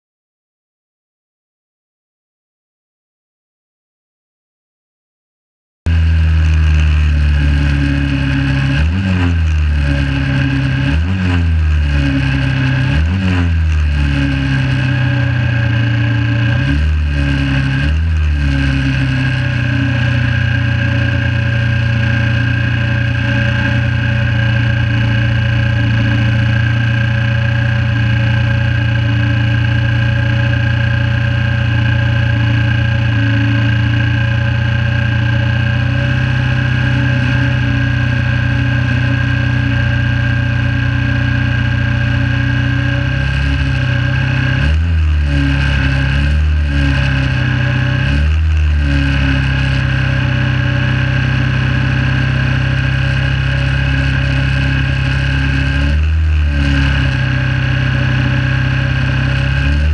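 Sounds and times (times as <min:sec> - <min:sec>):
motorcycle engine revving and idling: 0:05.9 - 0:59.9.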